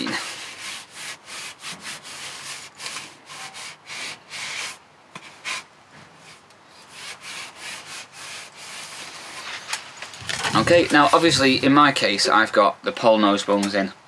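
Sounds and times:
wipe scrubbing fishing pole: 0.0s - 9.7s, 10.6s - 11.7s.

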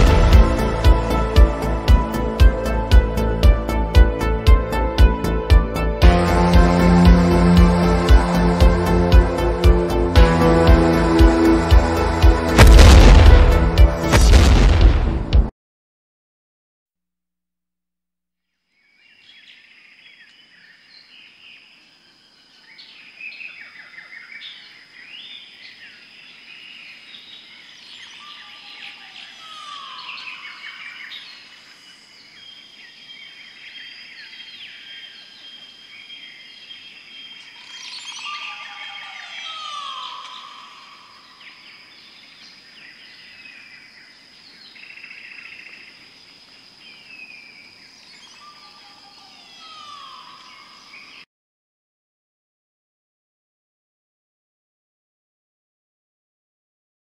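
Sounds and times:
birds chirping and calling: 27.8s - 31.4s, 36.1s - 43.4s, 48.0s - 51.2s.

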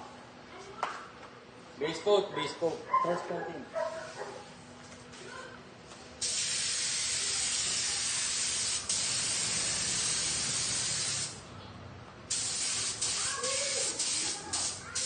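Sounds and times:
paint spray gun hissing: 6.2s - 11.4s, 12.3s - 15.0s.

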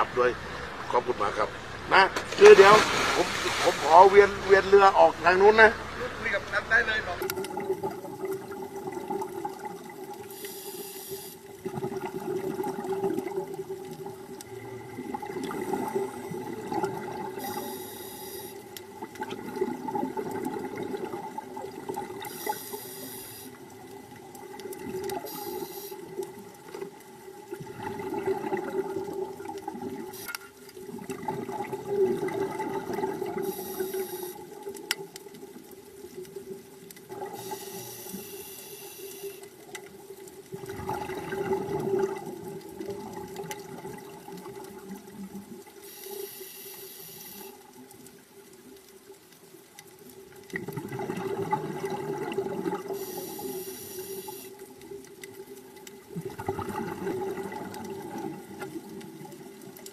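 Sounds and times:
exhaled bubbles gurgling: 2.3s - 6.2s, 7.1s - 59.9s
regulator breathing hiss: 10.3s - 11.5s, 17.4s - 18.7s, 22.2s - 23.6s, 25.2s - 26.1s, 33.4s - 34.5s, 37.4s - 39.6s, 45.8s - 47.6s, 52.9s - 54.6s.

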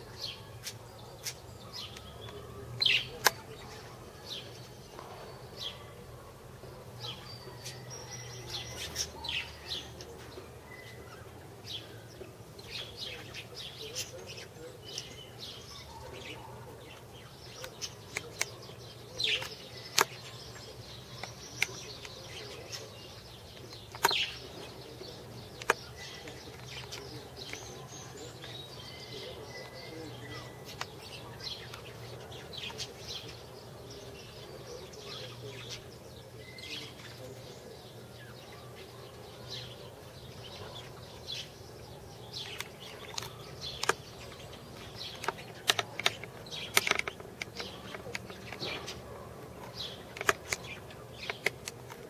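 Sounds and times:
faint bird chirps: 0.0s - 51.5s
sharp clicks: 19.3s - 20.3s, 23.6s - 24.4s, 25.5s - 27.8s, 42.4s - 49.0s, 49.7s - 52.0s.

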